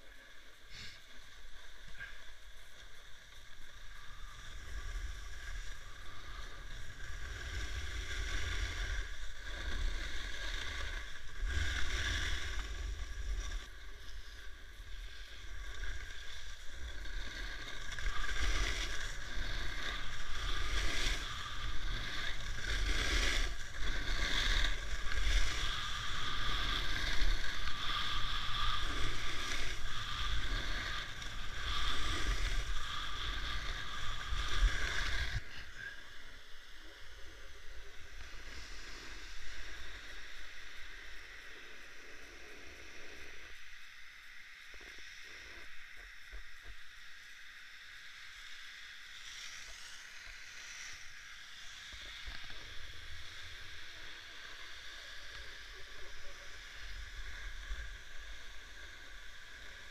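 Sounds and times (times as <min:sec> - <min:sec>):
skis swishing on snow: 0:00.1 - 0:36.0.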